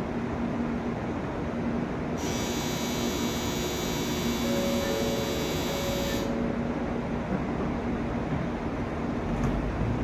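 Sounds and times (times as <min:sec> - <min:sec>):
train humming: 0:00.0 - 0:10.0
electronic departure bell ringing: 0:02.2 - 0:06.6.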